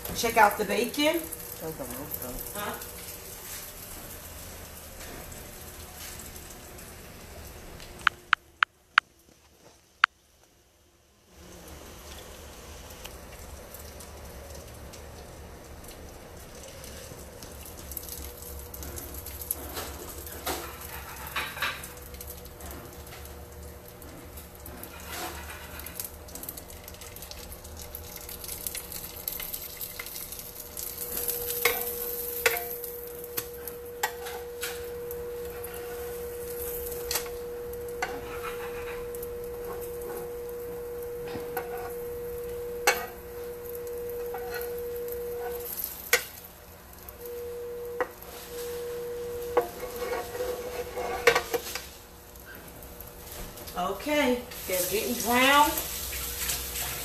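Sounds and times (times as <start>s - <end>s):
french toast sizzling: 0.0s - 8.4s, 11.3s - 57.0s
steady hum: 0.0s - 9.1s, 15.6s - 57.0s
spatula scraping and tapping pan: 38.0s - 40.3s, 41.2s - 42.0s, 42.8s - 43.2s, 44.2s - 46.3s, 49.4s - 51.9s.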